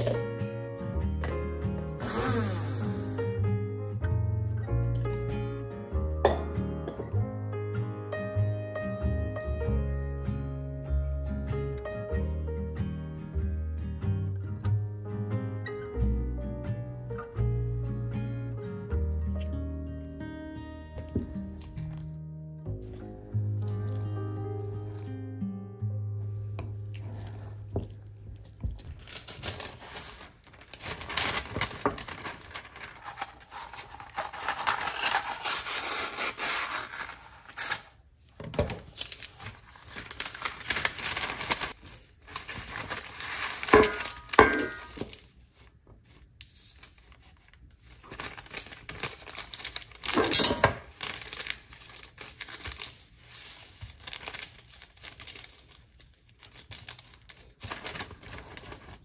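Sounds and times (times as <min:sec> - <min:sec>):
baking paper rustling and crinkling: 0:21.0 - 0:22.2, 0:23.0 - 0:25.2, 0:26.4 - 0:59.0.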